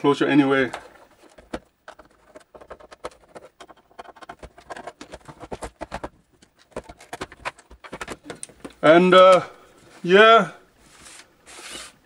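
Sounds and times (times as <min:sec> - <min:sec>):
plastic case clicks and knocks: 0:01.3 - 0:08.8.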